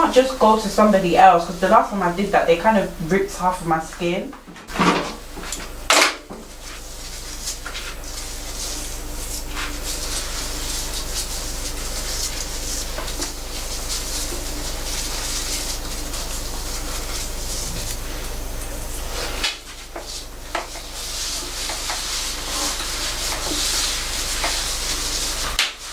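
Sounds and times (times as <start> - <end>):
water spraying from spray head: 6.4 - 25.9.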